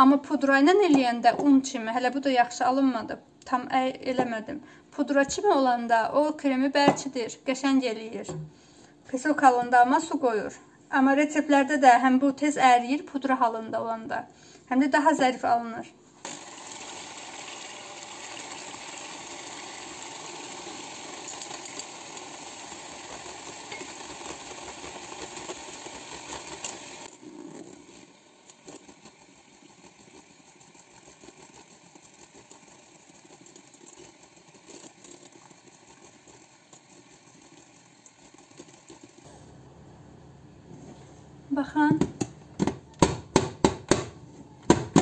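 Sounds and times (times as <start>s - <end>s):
electric hand mixer whirring: 16.2s - 39.3s.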